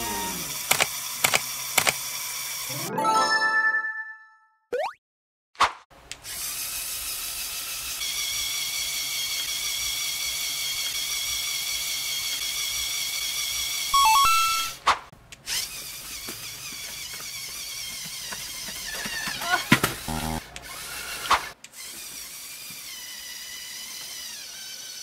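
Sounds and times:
second toy motor whirring: 0.0 - 2.7, 6.1 - 13.9, 15.4 - 25.0
toy motor and gears whirring: 0.0 - 2.8, 6.2 - 14.2, 15.4 - 25.0.

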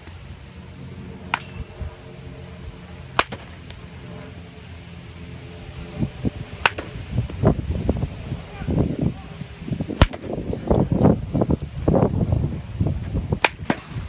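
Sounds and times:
baseball bat cracks: 1.3 - 1.6, 3.1 - 3.8, 6.6 - 7.0, 10.0 - 10.4, 13.4 - 14.0.

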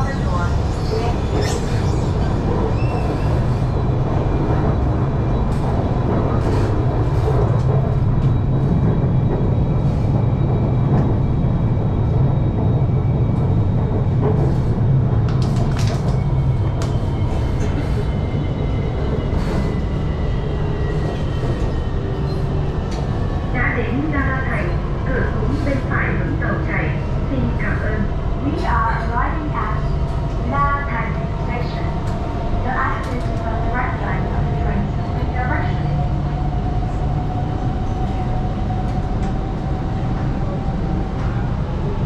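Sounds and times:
electric train rumble: 0.0 - 42.0
train clicks: 14.2 - 17.0.

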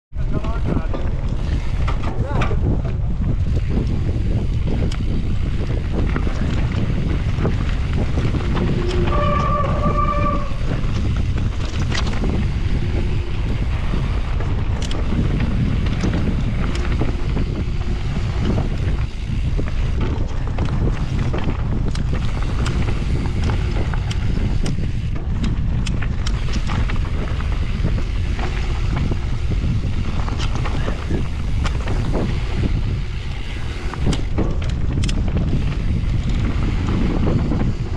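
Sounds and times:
wind buffeting microphone: 0.1 - 37.9
bike clicks and rattles: 0.2 - 37.9
tyres rumbling on dirt: 0.2 - 37.9
brief squeal: 8.9 - 10.8.

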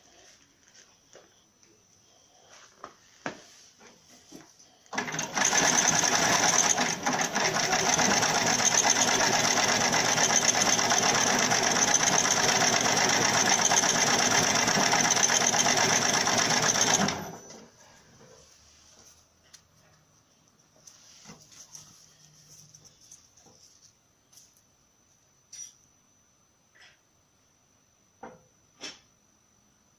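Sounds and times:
net sewing machine stitching: 4.9 - 17.6.

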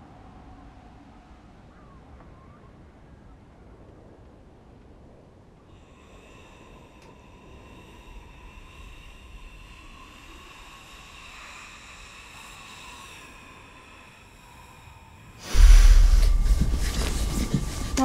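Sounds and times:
faint steady drone: 5.1 - 18.0
loud rushing with deep rumble: 15.4 - 18.0.

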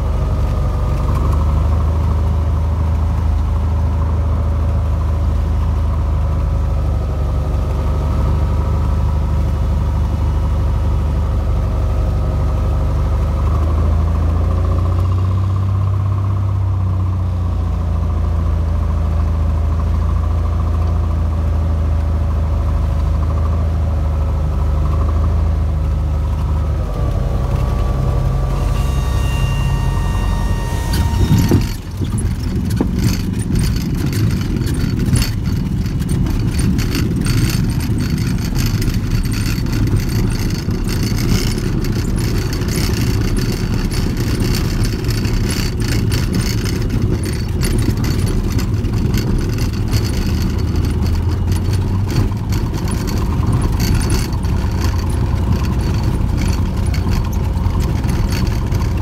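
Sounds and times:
aircraft engine and propeller droning: 18.2 - 59.0
wheels touching down thump: 26.9 - 59.0
cabin rattling and clattering: 31.2 - 59.0.

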